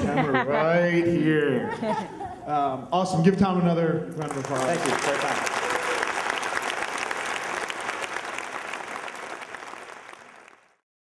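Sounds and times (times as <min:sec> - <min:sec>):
audience applauding: 0:04.2 - 0:10.8.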